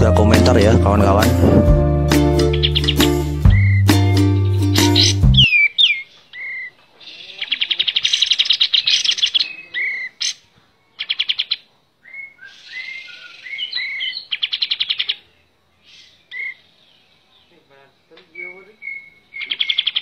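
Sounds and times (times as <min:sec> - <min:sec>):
bird whistled notes: 0:02.4 - 0:07.4, 0:12.0 - 0:14.2
bird harsh chattering: 0:02.4 - 0:15.3, 0:18.3 - 0:20.0.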